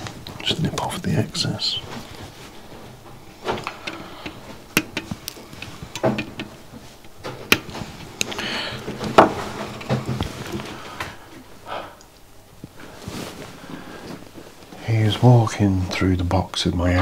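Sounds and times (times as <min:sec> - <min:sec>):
short rustle: 0:00.0 - 0:05.9, 0:12.6 - 0:16.0.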